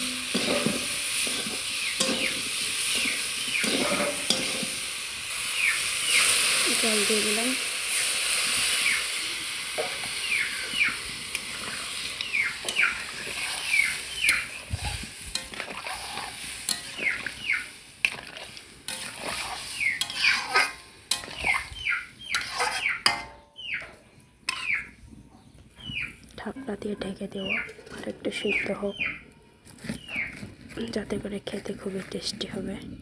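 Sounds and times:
food sizzling in a hot pan: 0.0s - 23.8s, 24.5s - 25.0s
bird chirping: 1.8s - 3.9s, 5.5s - 6.4s, 10.0s - 11.1s, 11.7s - 14.8s, 16.8s - 17.7s, 19.7s - 20.4s, 21.4s - 27.8s, 28.4s - 30.4s.

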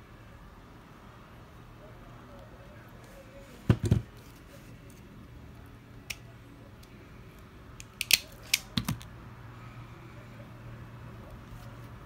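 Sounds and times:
wire stripper jaws snapping: 7.8s - 9.0s.

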